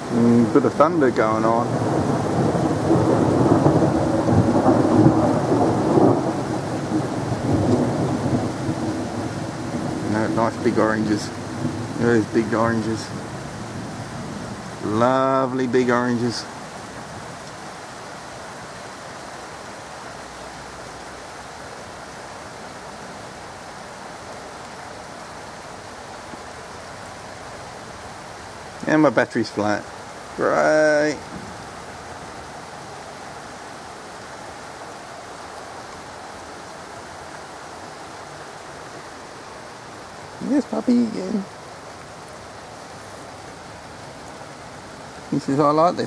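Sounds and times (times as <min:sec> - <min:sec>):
thunder rumbling: 0:00.0 - 0:17.4
steady rain: 0:00.0 - 0:46.0.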